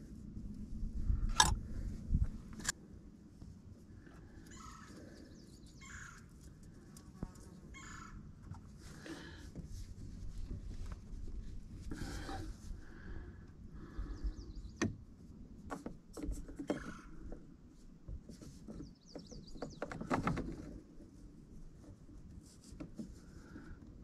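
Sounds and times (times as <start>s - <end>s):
plastic pipes rubbing: 15.6s - 17.5s.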